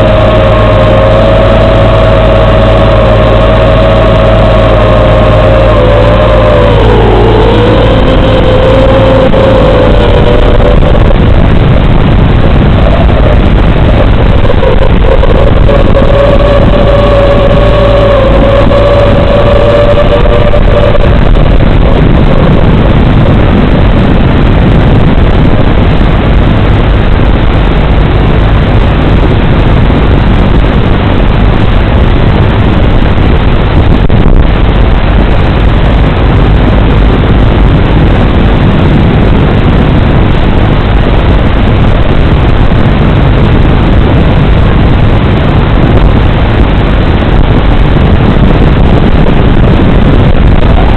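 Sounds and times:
quadcopter motor whine: 0:00.0 - 0:25.0, 0:50.6 - 0:50.9
static hiss: 0:00.0 - 0:50.9.

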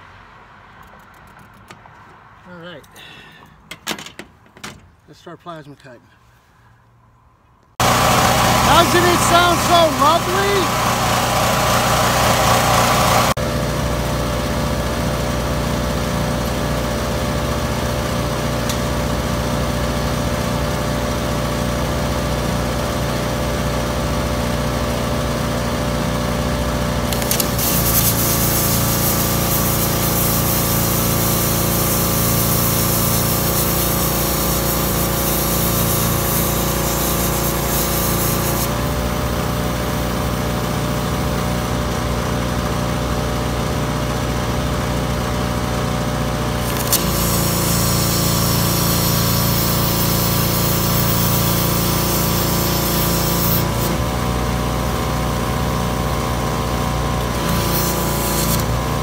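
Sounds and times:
plasma cutter hissing: 0:07.8 - 0:13.3, 0:27.2 - 0:39.0, 0:46.6 - 0:54.0, 0:57.4 - 0:58.8
small motor droning: 0:07.8 - 0:14.6, 0:46.6 - 0:54.6, 0:57.1 - 0:59.0.

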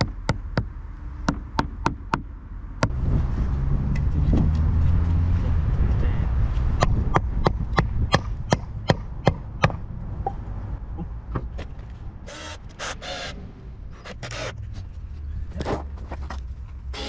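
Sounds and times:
cordless drill running: 0:12.3 - 0:13.3.

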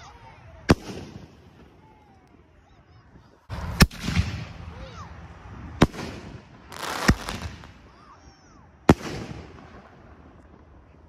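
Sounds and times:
firework booms with rolling echo: 0:00.7 - 0:01.8, 0:03.5 - 0:08.0, 0:08.8 - 0:10.8.

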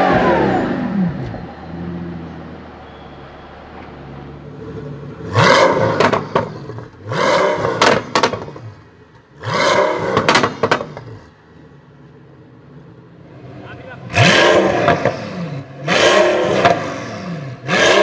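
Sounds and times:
car engine revving: 0:00.0 - 0:18.0
exhaust cracks: 0:04.6 - 0:11.4, 0:13.6 - 0:18.0.

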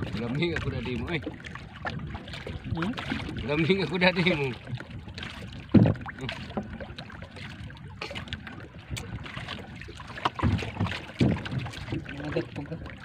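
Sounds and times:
water lapping against boat hull: 0:00.0 - 0:13.0
dull thump: 0:05.7 - 0:06.1, 0:10.2 - 0:11.8.

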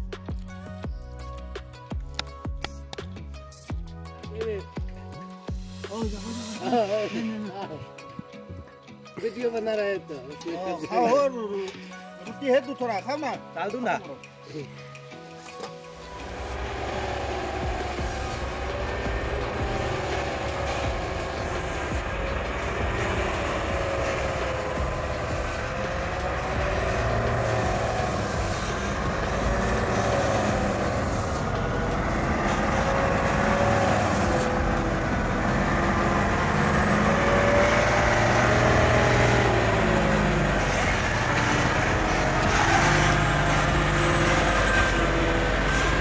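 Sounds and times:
truck diesel engine: 0:15.6 - 0:46.0.

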